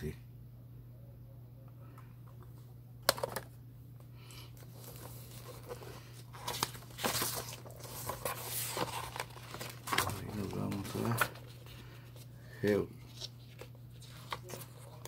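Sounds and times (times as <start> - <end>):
steady low hum: 0.0 - 15.0
record sleeves rustling: 4.5 - 15.0.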